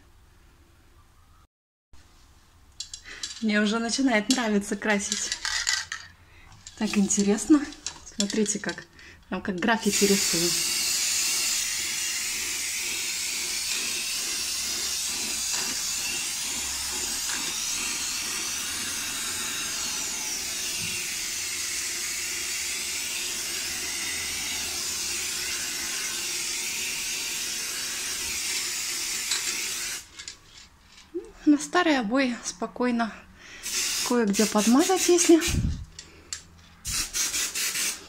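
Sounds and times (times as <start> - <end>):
aerosol spray can hissing: 9.8 - 30.1, 33.6 - 35.7, 36.8 - 38.0.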